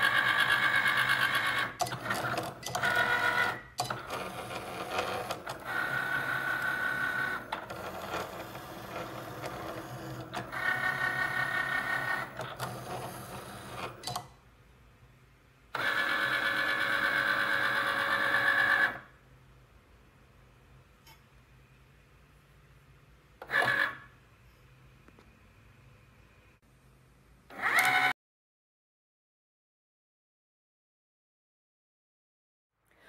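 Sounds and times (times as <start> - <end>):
cutting machine motors whirring: 0.0 - 14.3, 15.8 - 19.1, 23.4 - 24.1, 27.5 - 28.1.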